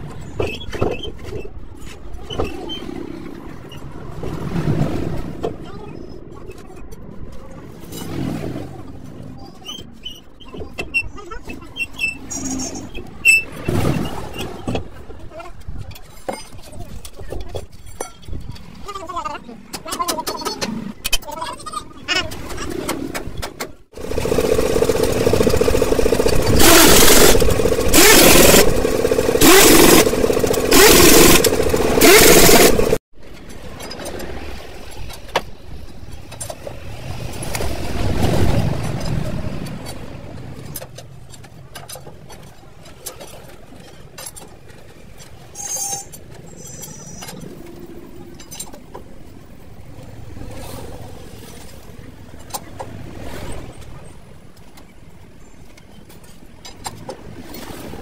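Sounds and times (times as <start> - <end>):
pneumatic impact wrench: 24.0 - 33.0.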